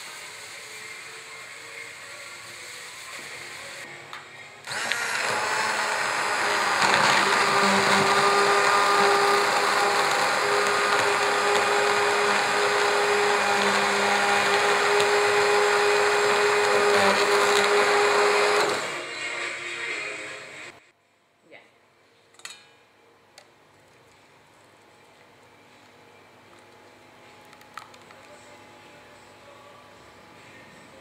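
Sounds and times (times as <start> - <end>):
immersion blender in metal pot: 4.6 - 19.1.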